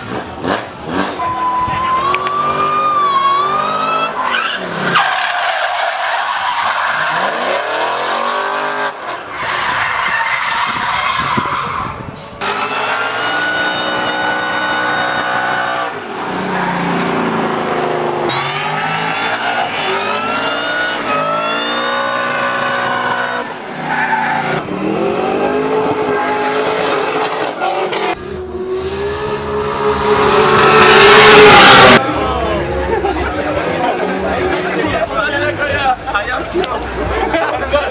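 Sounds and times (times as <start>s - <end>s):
car engines revving: 0.0s - 37.9s
tyre squeal: 1.1s - 7.4s, 9.3s - 15.9s.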